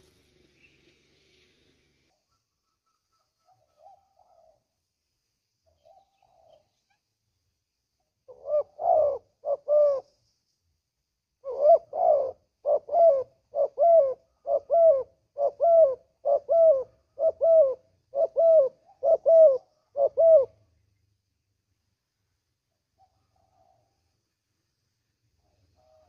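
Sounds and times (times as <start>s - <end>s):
dove cooing: 3.5s - 4.7s, 5.7s - 6.7s, 8.2s - 10.1s, 11.4s - 20.7s.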